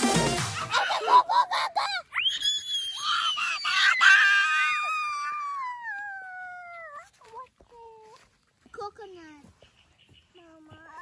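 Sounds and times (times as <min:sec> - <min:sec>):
children screaming in play: 0:00.7 - 0:07.2.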